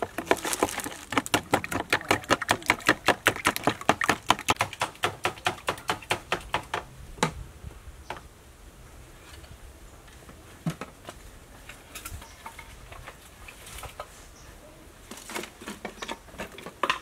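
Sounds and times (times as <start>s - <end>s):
metal spoon beating eggs in bowl: 0.0s - 4.8s.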